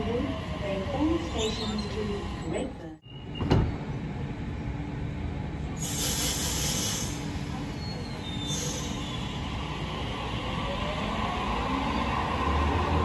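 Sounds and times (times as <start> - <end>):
air hissing: 5.8 - 7.4
electric train humming: 8.5 - 13.0.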